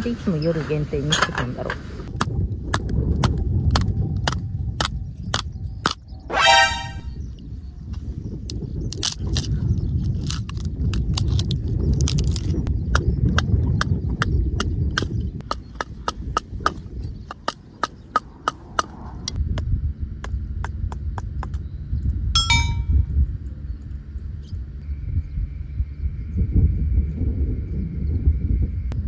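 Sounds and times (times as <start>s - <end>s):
low rumble: 1.8s - 29.0s
ringing metallic clank: 22.4s - 23.0s.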